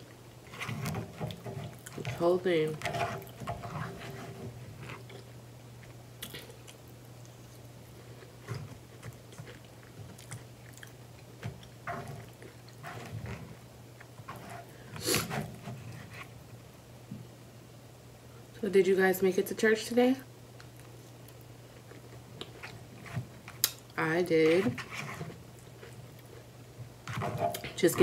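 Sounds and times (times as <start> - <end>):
steady low hum: 0.0 - 28.0
chewing and mouth smacks: 4.9 - 12.8.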